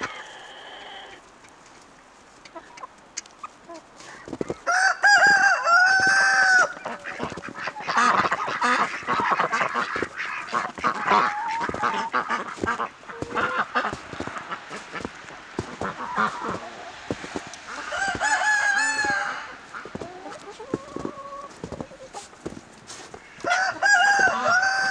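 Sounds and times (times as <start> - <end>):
chickens clucking: 0.0 - 24.9
ducks quacking: 3.5 - 24.9
rooster crowing: 4.7 - 7.0, 17.4 - 20.0, 23.4 - 24.9.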